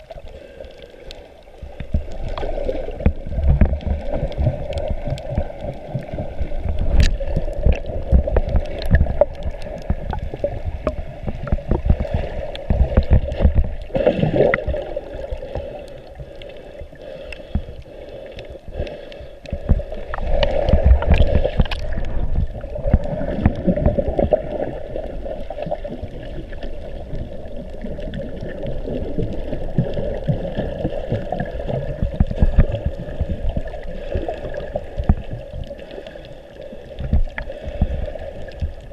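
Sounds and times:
low underwater rumbling: 0.0 - 38.9
muffled underwater sloshing: 0.0 - 38.9.

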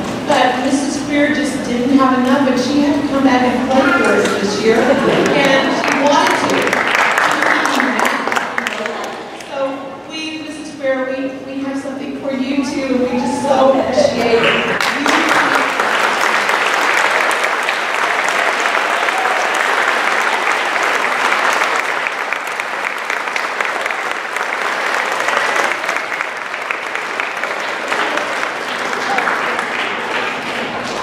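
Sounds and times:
large audience applauding: 4.8 - 9.5, 14.4 - 31.0.

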